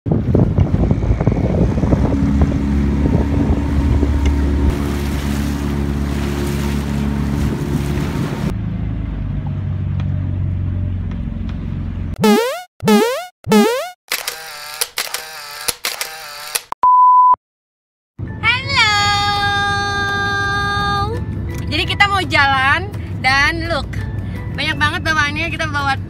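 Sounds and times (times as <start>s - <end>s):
wind and water rushing: 0.1s - 8.6s
motor boat engine running: 0.1s - 12.2s.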